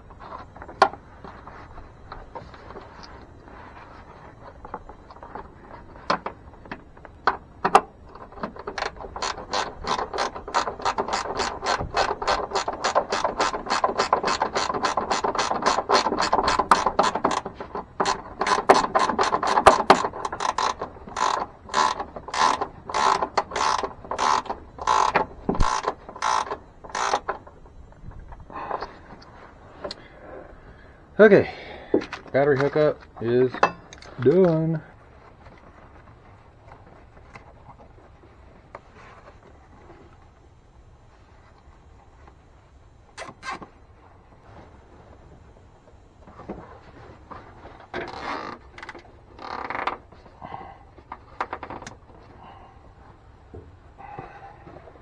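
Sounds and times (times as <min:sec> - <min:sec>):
ratcheting wrench clicking: 0:07.7 - 0:27.4.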